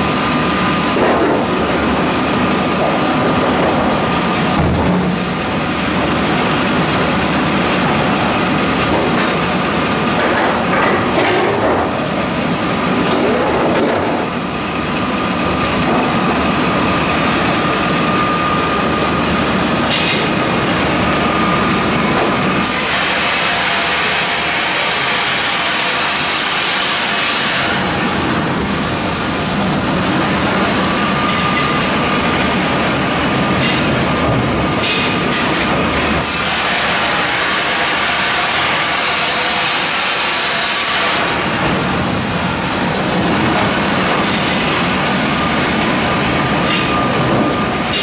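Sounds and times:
band sawmill sawing wood: 0.0 - 48.0.

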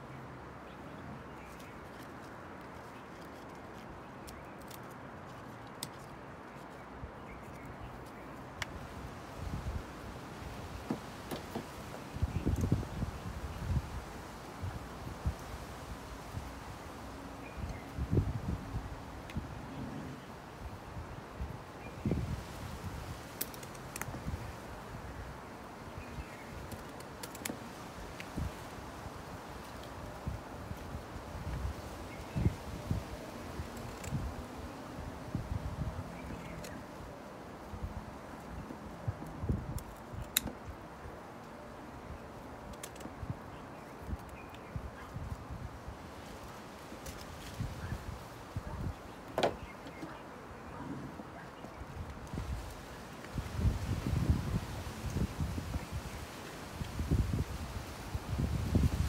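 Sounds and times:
outdoor background hiss: 0.0 - 59.0
shears snipping wood: 23.3 - 24.4, 26.3 - 28.7.

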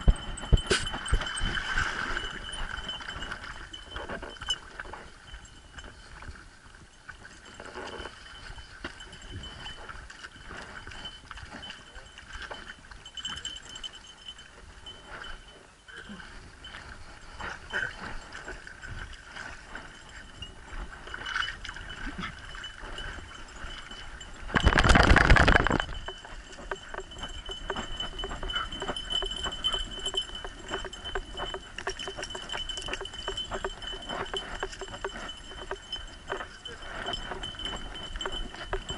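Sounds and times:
dog tags jingling: 21.9 - 38.9.

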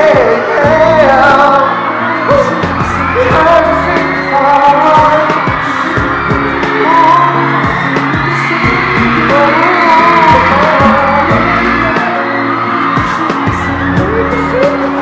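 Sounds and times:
man singing pop song: 0.0 - 15.0
pop backing track with drum beat: 0.0 - 15.0.

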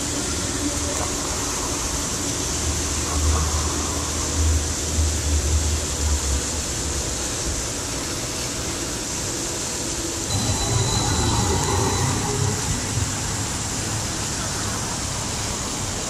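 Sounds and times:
city traffic noise: 0.0 - 16.0
streetcar rumbling: 0.0 - 16.0
thin high whine: 10.3 - 15.8.

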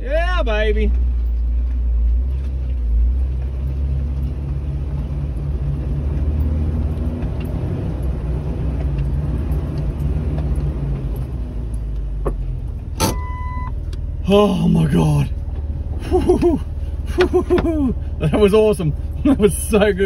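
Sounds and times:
engine low rumble: 0.0 - 20.0.

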